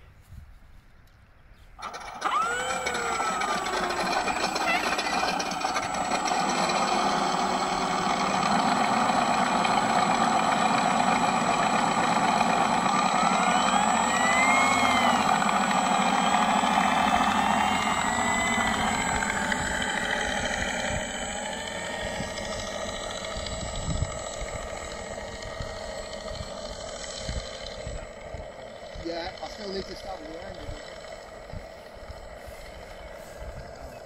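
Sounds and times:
simulated aircraft engine: 0:01.8 - 0:34.0.

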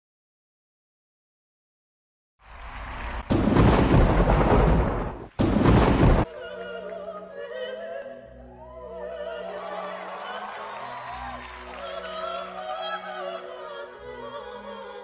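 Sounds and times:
thunder crashes: 0:02.6 - 0:06.3.

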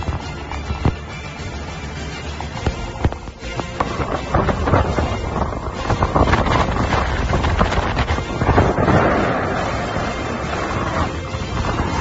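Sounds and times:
wind buffeting microphone: 0:02.6 - 0:12.0.

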